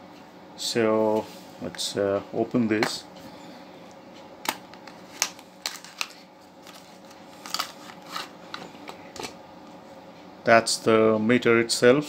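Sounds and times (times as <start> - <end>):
faint steady hum: 0.0 - 12.0
card and cable rustling: 4.5 - 9.4.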